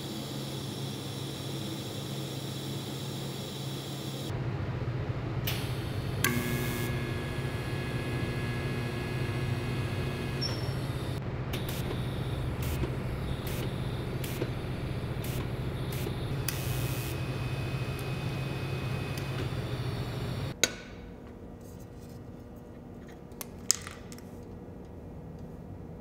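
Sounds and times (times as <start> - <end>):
welding arc buzzing: 0.0 - 4.4, 5.4 - 20.6
welder click: 10.3 - 17.2.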